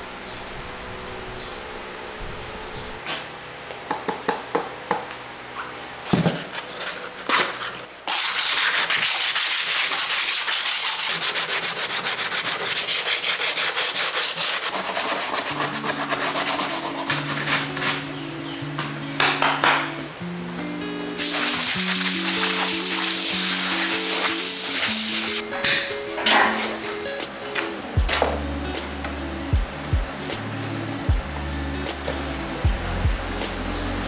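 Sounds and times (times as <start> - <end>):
sponge sanding fiberglass: 6.4 - 18.1, 21.2 - 25.4
background music with low notes: 14.8 - 34.0.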